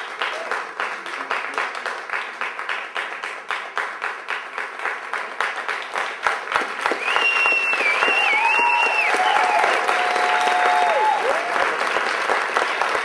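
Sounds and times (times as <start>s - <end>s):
audience applauding: 0.0s - 13.0s
long high whistle: 7.0s - 9.8s.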